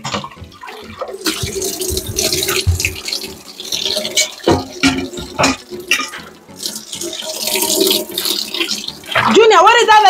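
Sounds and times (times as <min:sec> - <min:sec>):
dishes knocking and clattering: 0:00.0 - 0:06.4
tap running into sink: 0:00.0 - 0:09.4.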